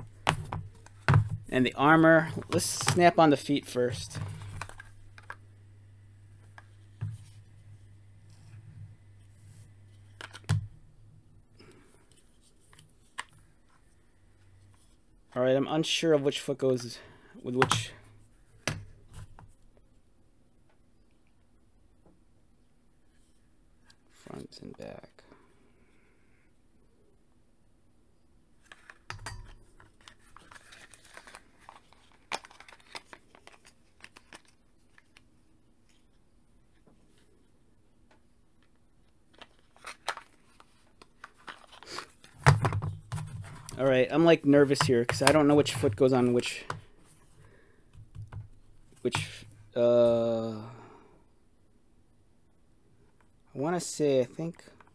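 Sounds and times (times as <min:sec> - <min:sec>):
low steady hum: 0:00.0 - 0:54.9
plastic parts clacking together: 0:28.6 - 0:35.2, 0:39.3 - 0:43.9.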